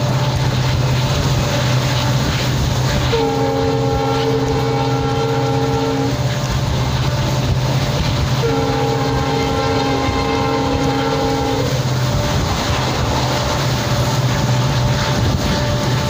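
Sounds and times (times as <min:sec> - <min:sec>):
locomotive engine drone: 0:00.0 - 0:16.0
locomotive horn chords: 0:00.0 - 0:16.0
train rolling noise: 0:00.0 - 0:16.0.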